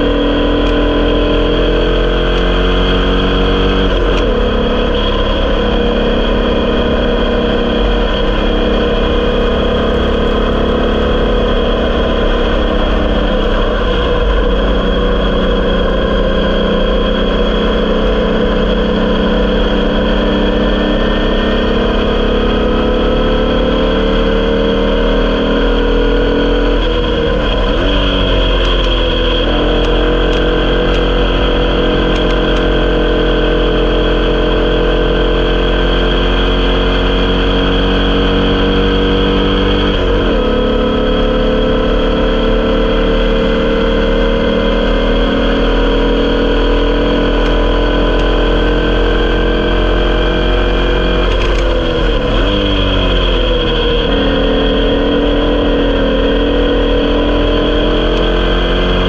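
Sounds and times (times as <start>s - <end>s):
race car engine running hard: 0.0s - 59.0s
wind and road rumble: 0.0s - 59.0s.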